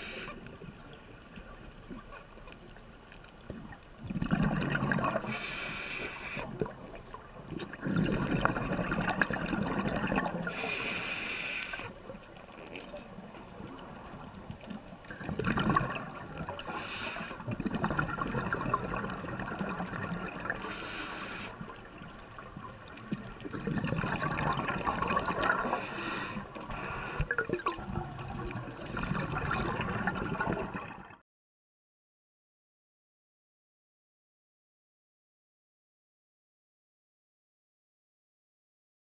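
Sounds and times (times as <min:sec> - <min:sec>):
gurgling underwater bubbles: 0:00.0 - 0:11.1, 0:11.7 - 0:31.2.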